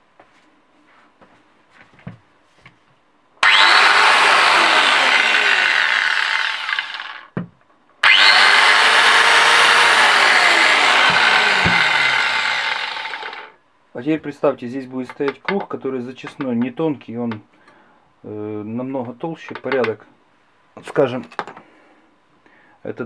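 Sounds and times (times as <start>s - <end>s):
angle grinder running: 3.4s - 7.3s, 8.0s - 13.6s.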